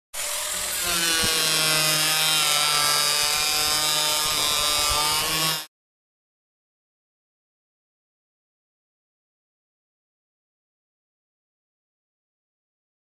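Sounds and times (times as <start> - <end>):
angle grinder cutting plastic pipe: 0.1 - 5.7.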